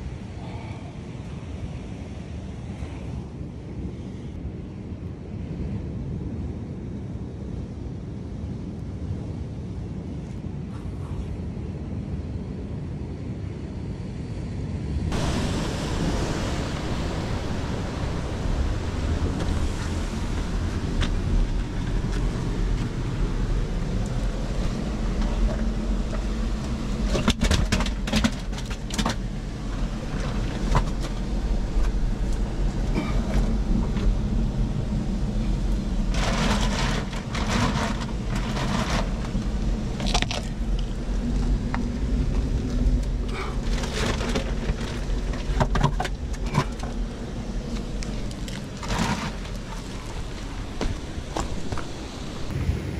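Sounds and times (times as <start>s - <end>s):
wind: 0.0s - 52.9s
sea surf: 14.8s - 52.9s
boots scraping on rock: 47.7s - 52.1s.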